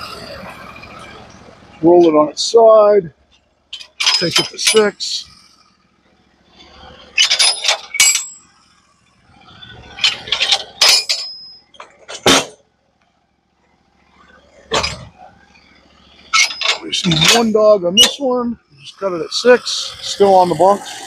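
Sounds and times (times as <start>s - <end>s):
log clanking on steel bed: 3.3s - 5.6s, 6.5s - 12.6s, 14.2s - 20.1s.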